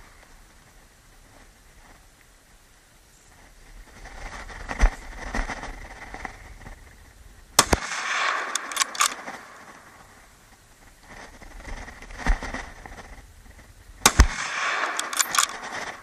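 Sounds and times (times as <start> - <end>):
rifle gunshots: 7.6 - 10.0, 14.0 - 16.0.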